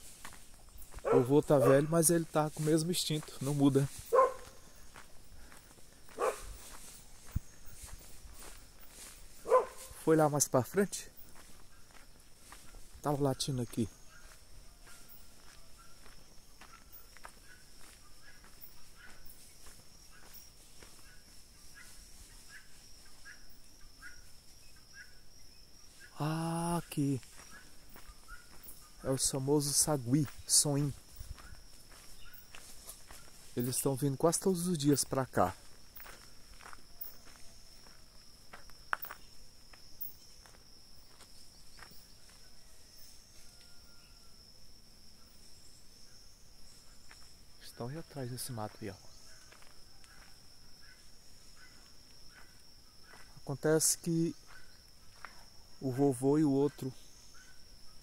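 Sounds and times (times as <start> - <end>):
rustles: 0.0 - 10.2, 11.1 - 26.2, 26.8 - 43.6
footsteps on dirt road: 0.0 - 24.7, 25.4 - 43.8, 44.4 - 57.9
high-pitched insect drone: 0.0 - 58.0.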